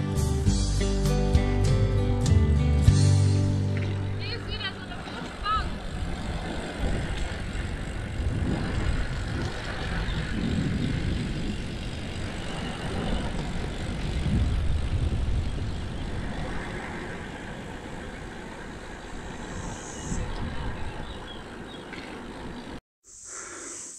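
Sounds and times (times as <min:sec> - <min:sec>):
wind rushing over microphone: 0:04.1 - 0:22.6.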